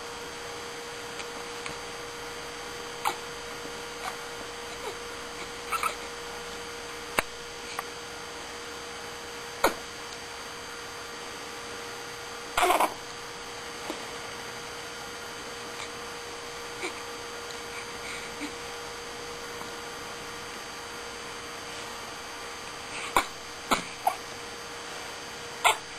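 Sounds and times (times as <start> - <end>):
electrical hum: 0.0 - 25.9
baby grunting and fussing: 3.0 - 6.2, 12.6 - 13.0, 16.7 - 17.1, 17.7 - 18.6, 22.9 - 24.2, 25.6 - 25.9.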